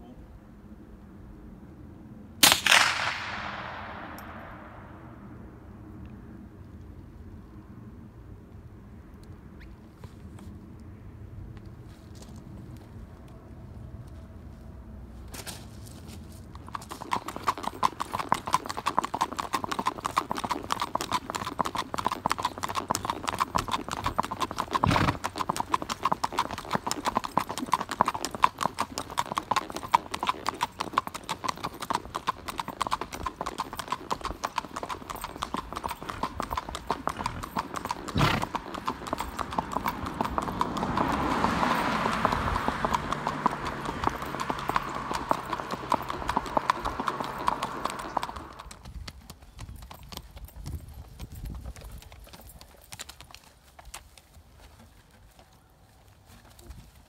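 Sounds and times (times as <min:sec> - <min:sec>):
horse hooves clip-clopping: 0:11.5 - 0:14.3, 0:15.2 - 0:57.0.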